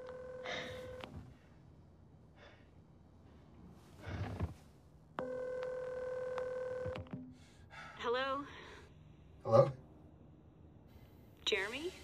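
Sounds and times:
telephone ringback tone: 0:00.0 - 0:01.0, 0:05.2 - 0:07.0.

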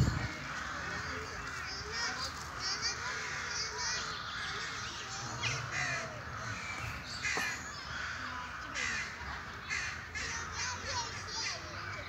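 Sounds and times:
small birds chirping: 0:00.0 - 0:12.0
crows cawing: 0:00.2 - 0:12.0.

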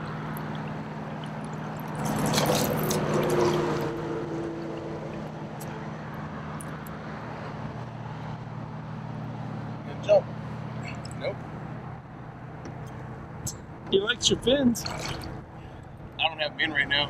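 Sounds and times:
fish splashing in water: 0:00.0 - 0:05.6, 0:14.8 - 0:15.5.

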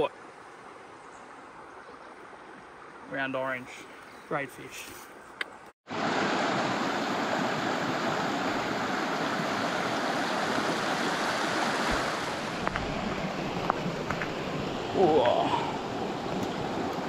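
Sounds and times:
creek water rushing over rocks: 0:05.9 - 0:17.0.

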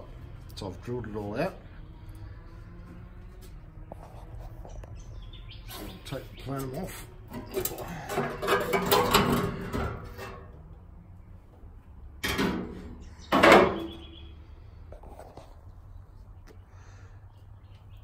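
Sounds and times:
sheet metal scraping and rattling: 0:05.7 - 0:10.8.

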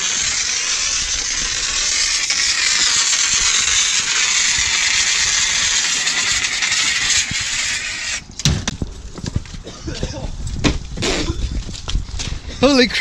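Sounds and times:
fire extinguisher hissing: 0:00.0 - 0:08.2.

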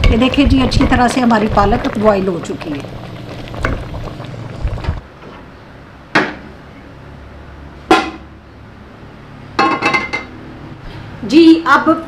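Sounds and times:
metal cookware clanking: 0:09.6 - 0:10.3.

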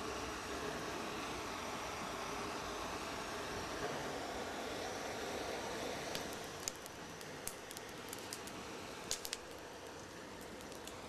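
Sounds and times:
gas torch hissing: 0:00.0 - 0:11.0
matches crackling and popping: 0:06.1 - 0:11.0.

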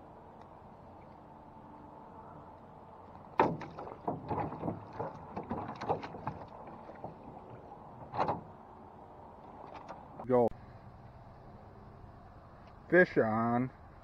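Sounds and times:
oar knocking against metal boat: 0:03.4 - 0:08.6.

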